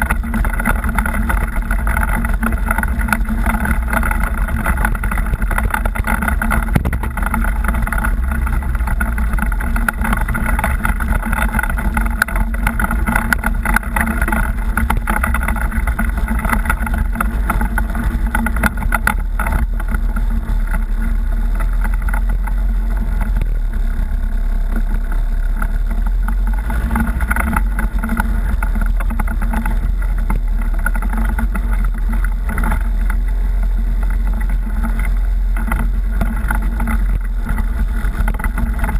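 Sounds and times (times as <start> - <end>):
knocks and rattles from bumps: 0.0 - 23.5
off-road vehicle engine running: 0.0 - 38.9.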